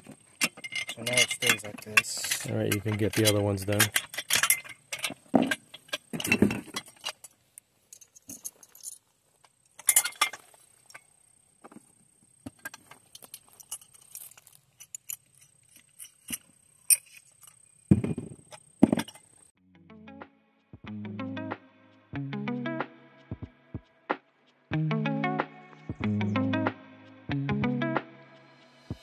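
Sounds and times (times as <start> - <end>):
metal parts clinking: 0.4 - 9.1, 9.8 - 11.0, 12.6 - 19.3
dull thump: 17.9 - 19.0.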